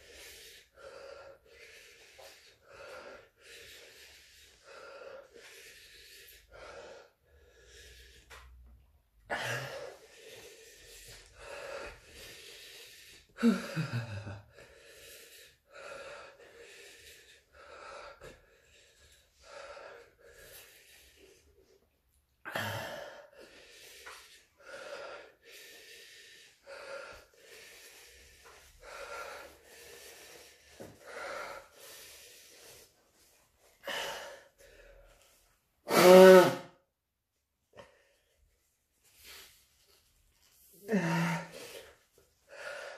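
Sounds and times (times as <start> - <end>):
man breathing hard: 0.0 - 36.8, 37.7 - 42.9
man moaning: 35.9 - 36.7, 40.8 - 41.6.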